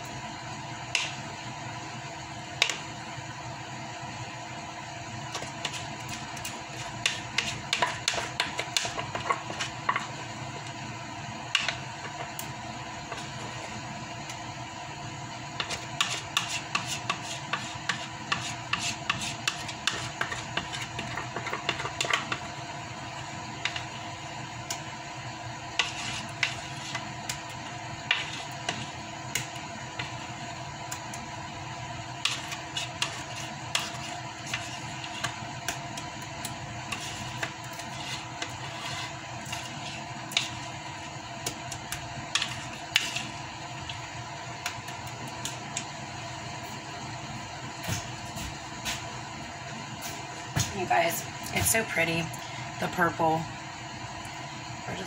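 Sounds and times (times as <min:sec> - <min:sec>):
steady hum: 0:00.0 - 0:55.0
utensil scraping mixing bowl: 0:16.0 - 0:22.4, 0:25.8 - 0:27.1, 0:32.2 - 0:35.4, 0:36.9 - 0:40.8, 0:42.3 - 0:44.0.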